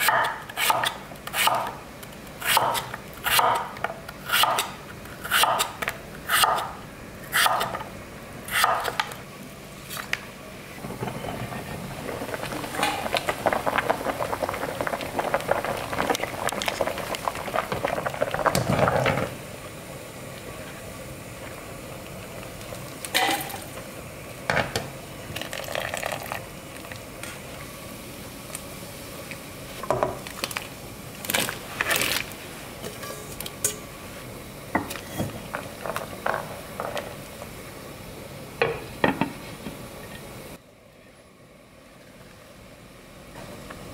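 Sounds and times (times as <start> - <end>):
broth boiling and bubbling: 9.1 - 43.9.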